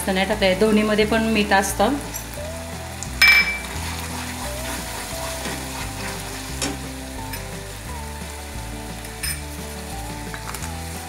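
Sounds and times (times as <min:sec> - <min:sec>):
soft background music: 0:00.0 - 0:11.0
gravy sizzling in a pan: 0:00.1 - 0:11.0
spatula stirring in a pan: 0:02.5 - 0:09.6.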